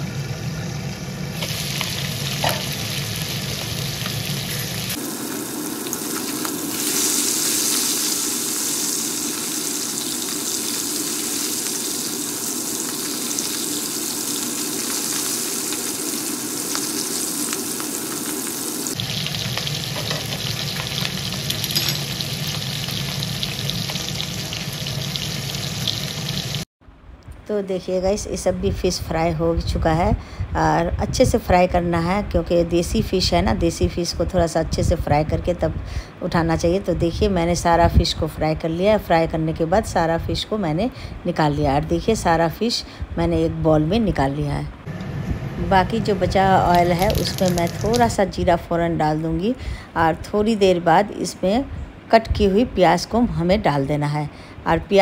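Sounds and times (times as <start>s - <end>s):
fish sizzling in hot oil: 1.3s - 26.7s, 46.7s - 48.2s
oil crackling spatters: 1.4s - 26.6s, 46.6s - 48.4s.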